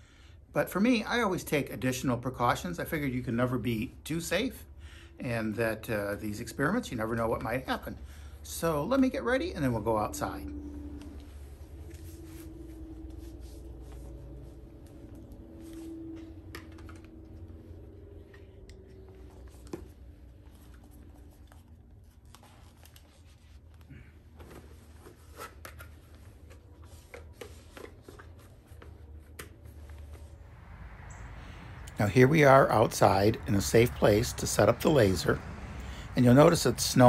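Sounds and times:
low steady hum: 0.0s - 37.0s
rustling of safety gear: 9.6s - 30.6s.

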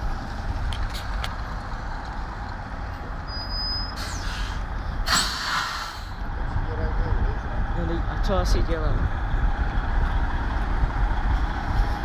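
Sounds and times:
truck diesel engine rumbling: 0.0s - 12.0s
air brakes hissing: 3.6s - 6.2s.

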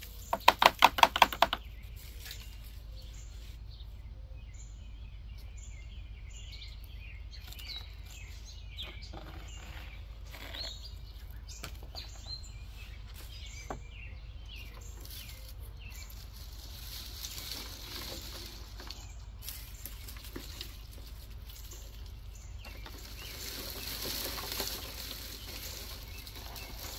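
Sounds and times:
birds chirping: 0.0s - 26.9s
dried stalks rustling: 1.6s - 4.0s, 7.4s - 26.9s
low background hum: 1.6s - 26.9s.

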